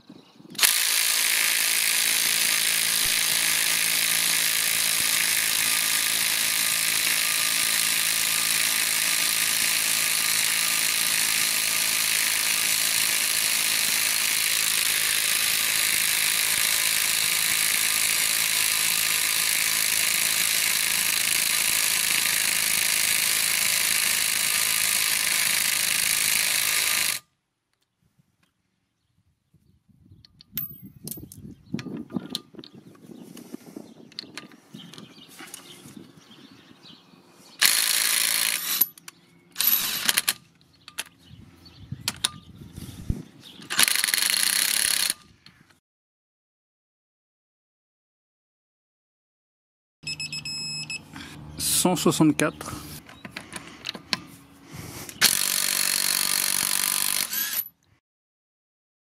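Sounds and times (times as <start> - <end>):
impact wrench hammering: 55.2 - 57.6.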